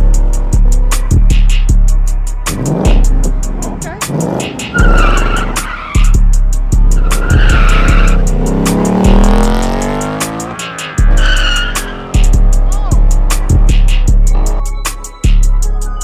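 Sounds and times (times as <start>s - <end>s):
car engine revving: 0.0s - 15.2s
hip-hop track with heavy bass: 0.0s - 16.0s
tyres squealing: 4.1s - 9.4s, 10.2s - 12.8s.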